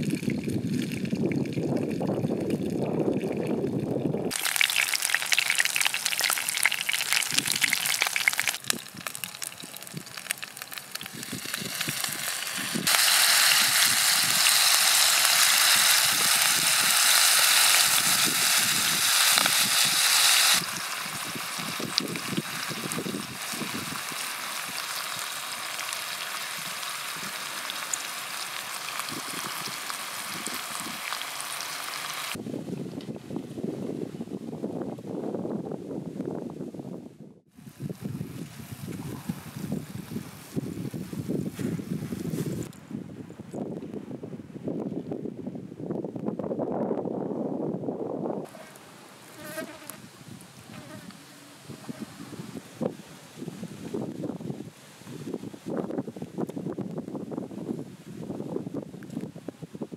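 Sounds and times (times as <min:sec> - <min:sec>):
fish frying in oil: 0:00.0 - 0:02.8, 0:04.3 - 0:32.4.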